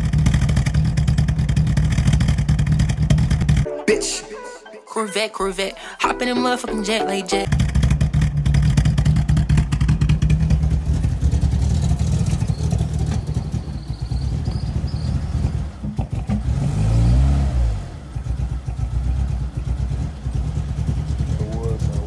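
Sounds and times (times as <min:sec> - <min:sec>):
car engine idling choppy: 0:00.0 - 0:03.6, 0:07.5 - 0:16.6, 0:17.9 - 0:22.0
engine revving: 0:07.5 - 0:22.0.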